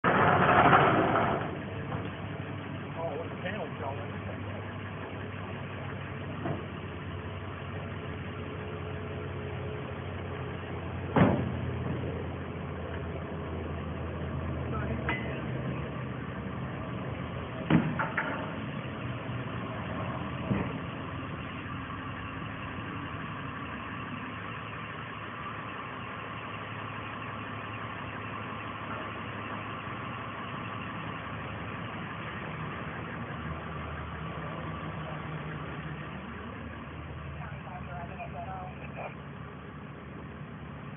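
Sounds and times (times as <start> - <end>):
engine idling: 0.0 - 40.9
sharp knock: 11.2 - 11.6.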